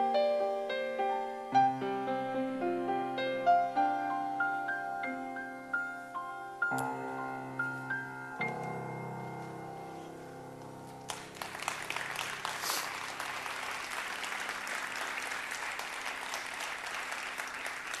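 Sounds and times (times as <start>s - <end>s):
grand piano chord ringing: 1.6s - 11.3s
audience applause: 11.1s - 18.0s.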